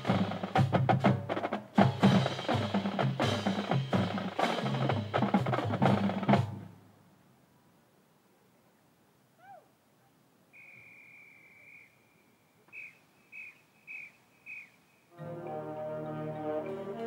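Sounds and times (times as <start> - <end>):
brass band playing loudly: 0.0 - 6.7, 15.2 - 17.0.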